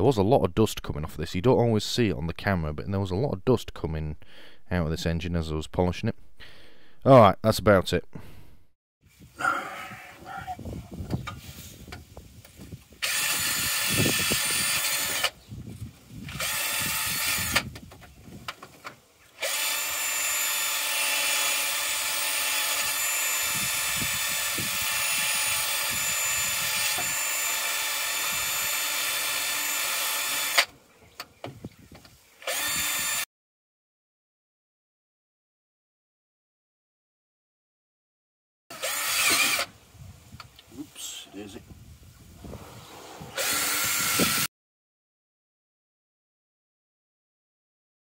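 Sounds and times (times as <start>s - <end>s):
rotary power tool whining: 13.0s - 15.4s, 16.2s - 17.7s, 19.4s - 30.7s, 32.4s - 33.3s, 38.7s - 39.7s, 43.3s - 44.5s.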